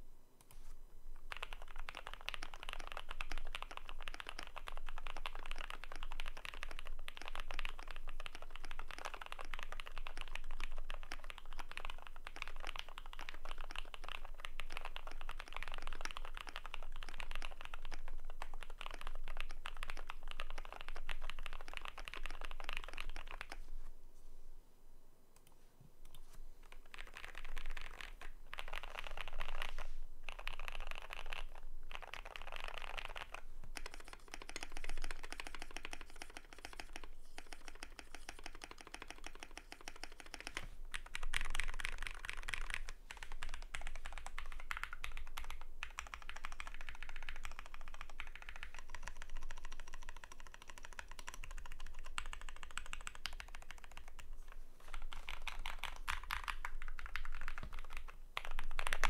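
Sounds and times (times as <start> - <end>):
mechanical keyboard typing: 1.3 - 23.6, 26.6 - 54.3, 54.9 - 59.0.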